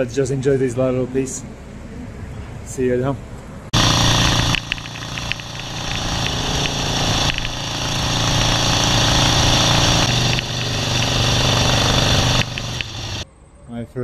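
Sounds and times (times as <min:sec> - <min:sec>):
motorcycle engine running: 0:03.8 - 0:13.2.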